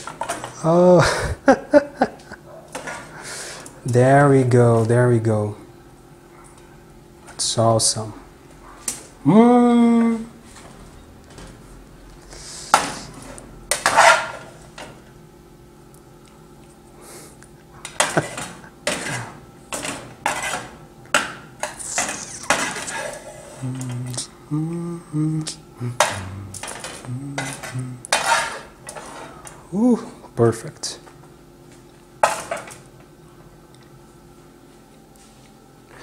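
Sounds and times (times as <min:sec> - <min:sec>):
metal spoon scraping frying pan: 0:13.7 - 0:14.4, 0:18.0 - 0:20.8, 0:21.6 - 0:23.4, 0:27.4 - 0:29.4.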